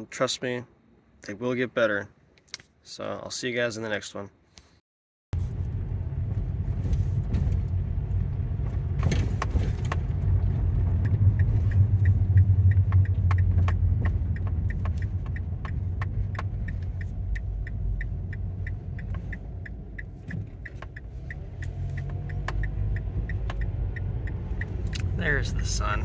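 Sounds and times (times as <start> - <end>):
engine and road rumble: 5.3 - 26.0
light ticking: 11.0 - 26.0.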